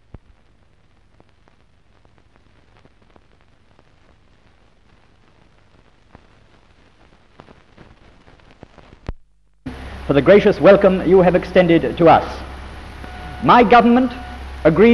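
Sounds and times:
clicks and crackles: 0.0s - 9.6s
faint film surface hiss: 0.0s - 14.9s.

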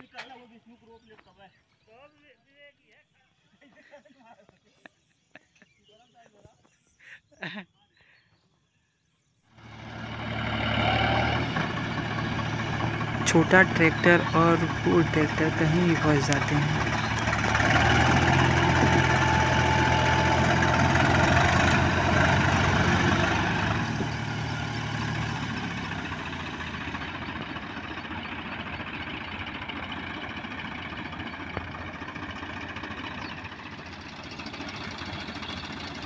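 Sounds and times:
diesel tractor engines running: 9.6s - 36.0s.

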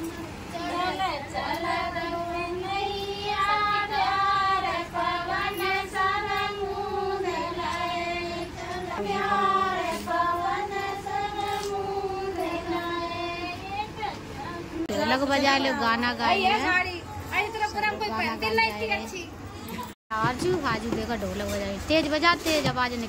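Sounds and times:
women singing folk song: 0.0s - 16.8s.

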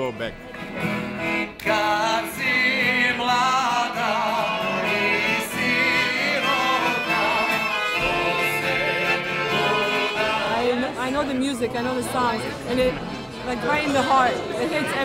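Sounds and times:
acoustic guitar: 0.0s - 15.0s
piano accordion: 0.7s - 11.5s
man singing with vibrato: 1.6s - 11.0s.

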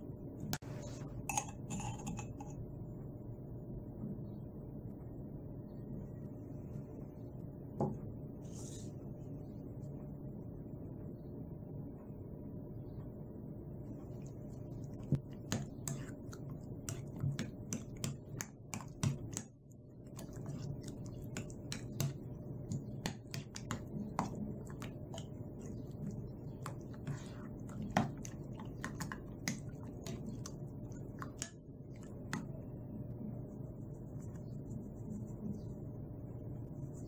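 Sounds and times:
metal spoon clinking against bowl: 1.2s - 2.6s.

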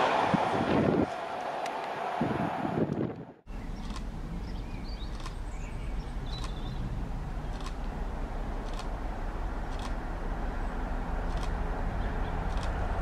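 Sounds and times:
wind rumble on microphone: 0.0s - 1.3s, 2.1s - 13.0s
faint birdsong chirping: 3.5s - 11.0s
soft clicks: 5.0s - 5.4s, 6.4s - 6.6s.

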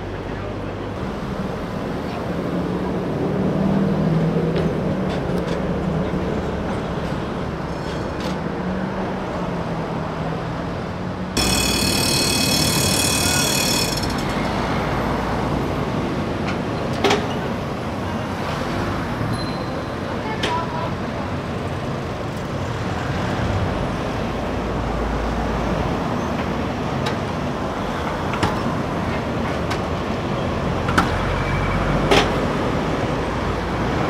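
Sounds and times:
tram humming: 0.0s - 19.2s
traffic noise: 0.0s - 34.0s
tram metallic squeal: 11.4s - 15.5s, 31.2s - 32.1s.

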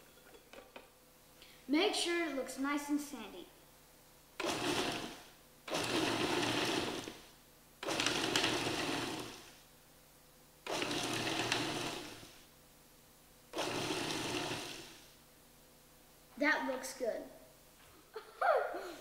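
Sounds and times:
food processor motor pulsing: 4.4s - 9.6s, 10.6s - 12.4s, 13.5s - 15.1s.

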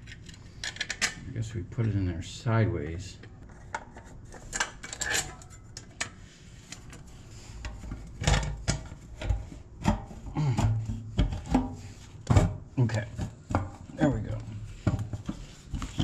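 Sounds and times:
metal parts clinking and scraping: 3.6s - 6.1s.

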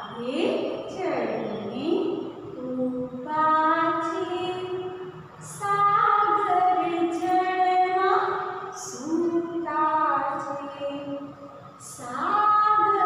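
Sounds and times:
woman singing unaccompanied: 1.8s - 4.9s, 5.5s - 11.3s, 11.9s - 13.0s.

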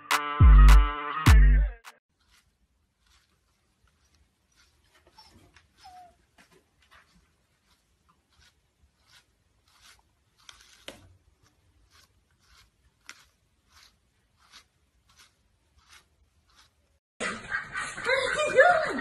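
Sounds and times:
brush strokes through fur: 2.1s - 17.0s.

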